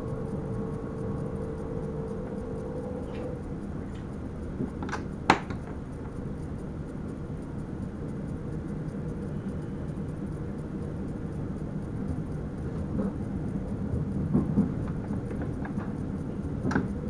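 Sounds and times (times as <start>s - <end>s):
electric train rumbling: 0.0s - 17.0s.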